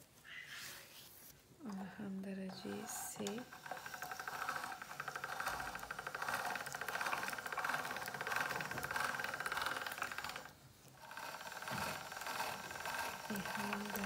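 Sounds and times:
pasta machine gears rattling: 0:01.7 - 0:14.0.

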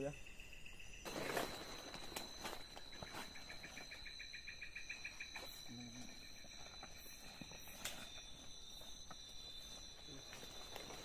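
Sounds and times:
crickets shrilling: 0:00.0 - 0:11.0
insect trilling in rapid pulses: 0:00.0 - 0:11.0
rustles of people in undergrowth: 0:00.9 - 0:11.0.

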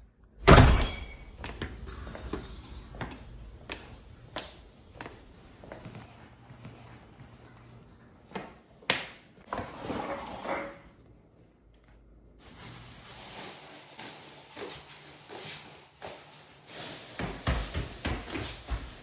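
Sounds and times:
plastic bag rustling and scraping: 0:12.4 - 0:17.7.

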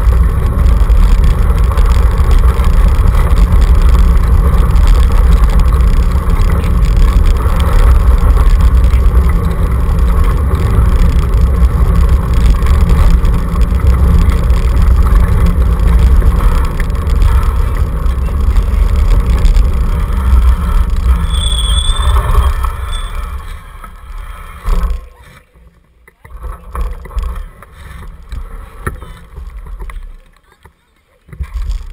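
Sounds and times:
scooter rumbling over gravel: 0:00.0 - 0:31.9
high squeal: 0:21.1 - 0:23.7.

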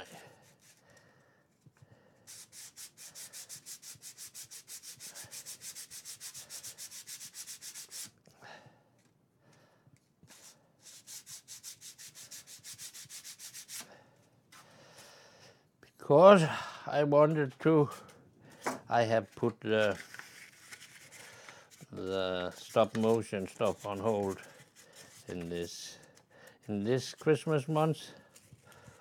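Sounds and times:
sandpaper rubbing on wood: 0:02.3 - 0:08.2, 0:10.3 - 0:13.9, 0:22.0 - 0:25.8.

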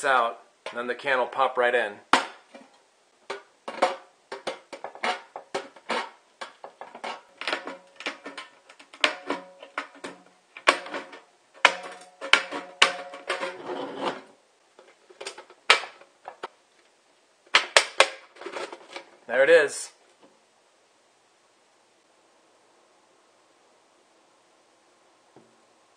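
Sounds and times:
metal can ringing: 0:07.0 - 0:13.5.

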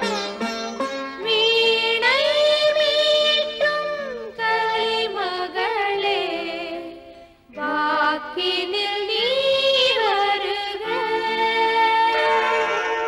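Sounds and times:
instrumental accompaniment: 0:00.0 - 0:04.6, 0:07.2 - 0:13.0
voices singing devotional song: 0:01.2 - 0:13.0.

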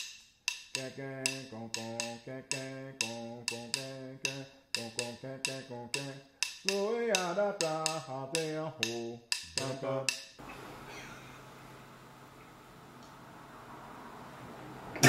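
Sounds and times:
sharp wood block clicks: 0:00.0 - 0:10.4
man chanting: 0:00.8 - 0:10.1.

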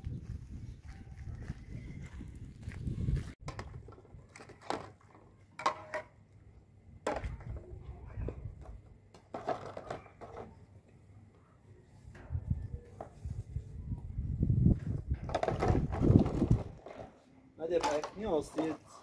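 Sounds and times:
footsteps on gravel: 0:00.1 - 0:03.4.

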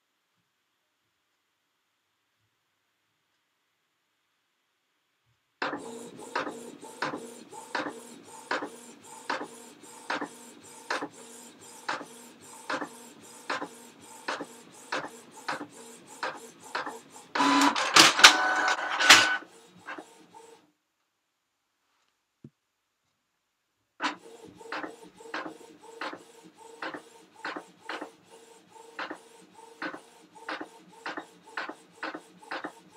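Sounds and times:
printer clicking: 0:05.6 - 0:11.1, 0:11.8 - 0:19.4
printer mechanism noise: 0:05.6 - 0:20.0, 0:28.8 - 0:32.9
printer humming: 0:05.7 - 0:20.2.

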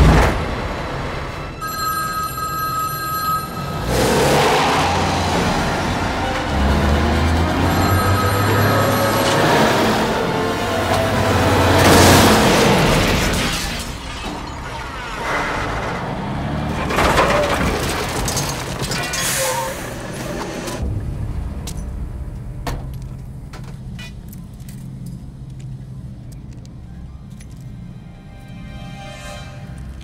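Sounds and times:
truck crashing into booth: 0:10.7 - 0:20.0
debris ticking and tinkling: 0:12.0 - 0:19.6
low steady rumble: 0:20.8 - 0:28.8.

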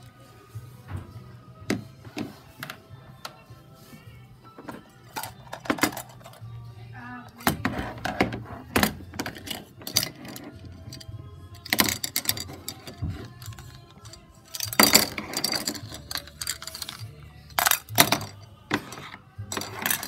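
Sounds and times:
toy plate set down: 0:14.6 - 0:20.0.

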